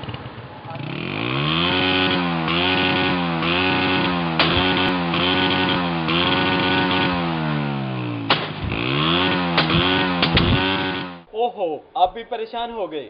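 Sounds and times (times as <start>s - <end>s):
motorcycle engine revving: 0.0s - 11.3s
exhaust backfire bangs: 1.2s - 11.3s.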